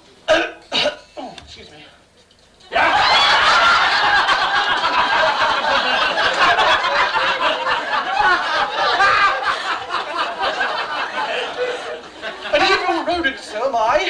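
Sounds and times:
audience laughing: 2.7s - 13.7s.

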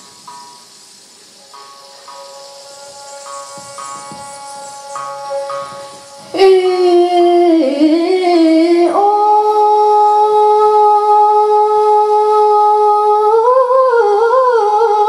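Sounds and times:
woman singing into a microphone: 6.3s - 15.0s.

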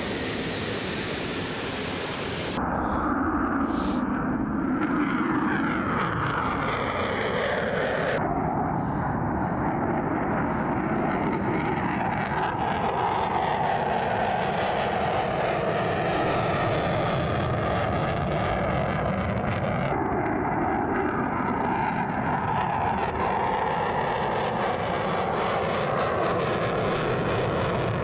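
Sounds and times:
jet roar: 0.0s - 28.0s.

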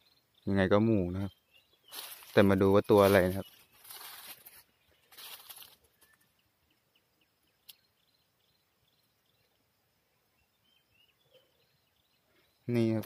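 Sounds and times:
faint high chirps: 0.0s - 13.0s
footsteps on dry leaves: 1.9s - 6.2s.

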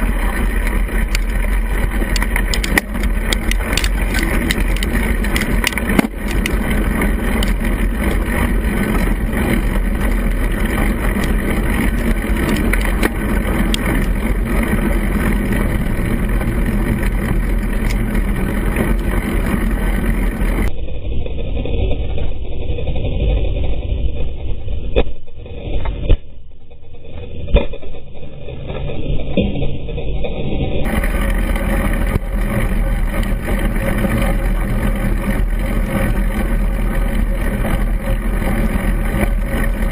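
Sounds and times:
small clicks and knocks: 0.0s - 19.8s
bicycle riding over wet path: 0.0s - 20.7s, 30.8s - 39.9s.

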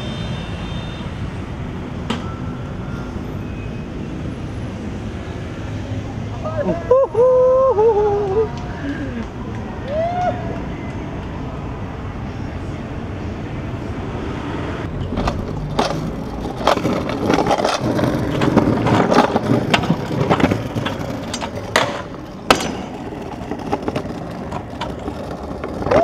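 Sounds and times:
scooter wheels rolling: 14.8s - 26.0s
scooter deck clacking and thudding: 15.0s - 26.0s.

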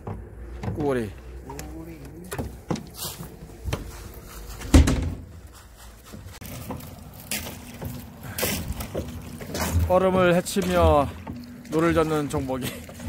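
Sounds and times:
knocks and thumps: 0.0s - 1.0s, 2.3s - 3.9s, 4.6s - 5.4s.

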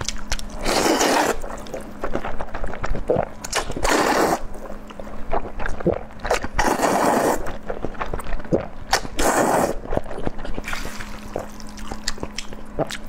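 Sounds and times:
chewing clicks: 0.0s - 4.0s, 9.9s - 13.0s
noodles being slurped: 0.5s - 2.4s, 3.1s - 4.6s, 5.7s - 7.6s, 8.5s - 12.1s.

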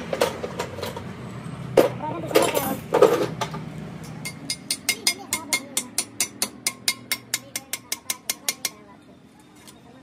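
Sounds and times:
hammer tapping metal: 4.1s - 8.9s.

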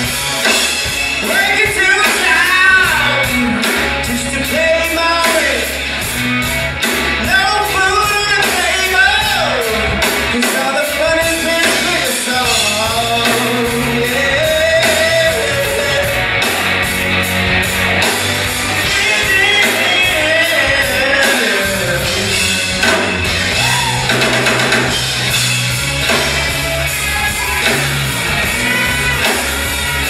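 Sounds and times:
bass guitar: 0.0s - 30.0s
drum kit: 0.0s - 30.0s
electric guitar: 0.0s - 30.0s
man singing into a microphone: 1.2s - 5.8s, 7.2s - 16.3s, 18.9s - 22.7s.

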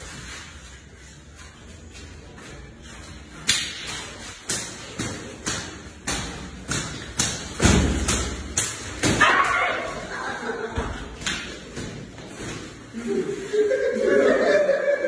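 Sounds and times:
belts cracking with echo: 1.6s - 13.1s.

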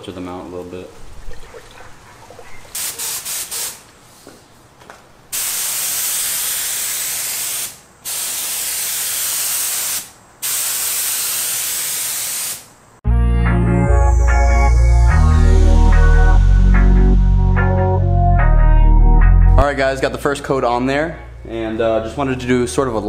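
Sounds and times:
paint spray gun hissing: 2.8s - 3.8s, 5.4s - 12.7s.

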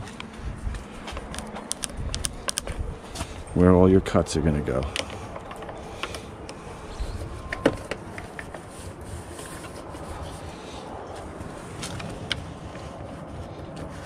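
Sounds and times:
pencil rubbing and tapping on vinyl: 7.5s - 10.4s.

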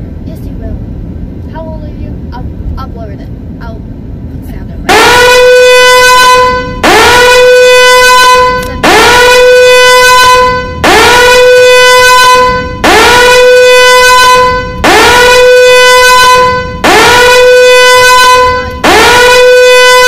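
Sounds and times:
buzzy horn-like tone: 5.0s - 20.0s.

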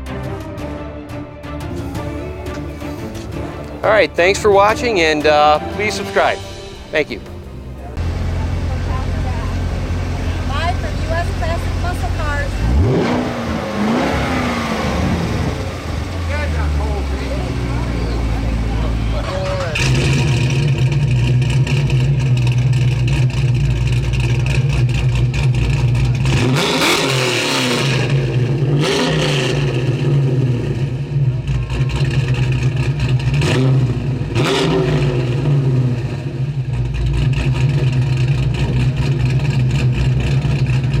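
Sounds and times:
car engine idling and revving: 1.6s - 41.0s.

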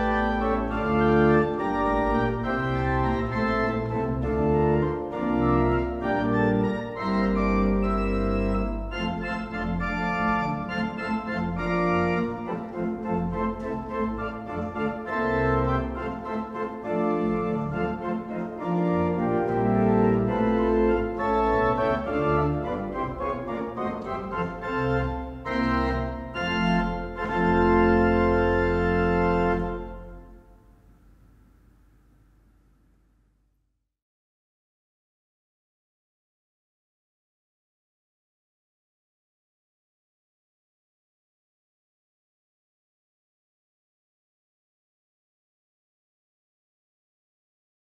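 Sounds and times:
pipe organ playing chords: 0.0s - 31.8s.

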